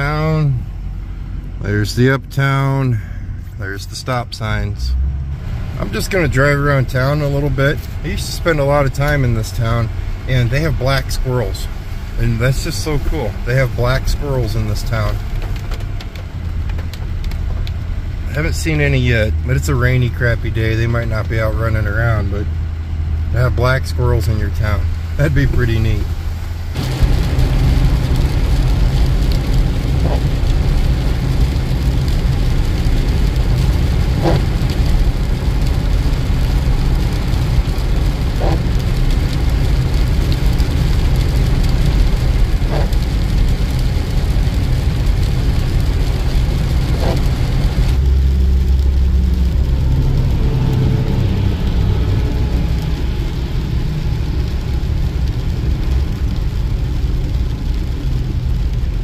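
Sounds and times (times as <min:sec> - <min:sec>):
engine and tyre rumble: 0:00.0 - 0:59.0
windshield wipers sweeping: 0:05.3 - 0:21.8, 0:24.4 - 0:59.0
tyre hiss on wet road: 0:24.9 - 0:59.0.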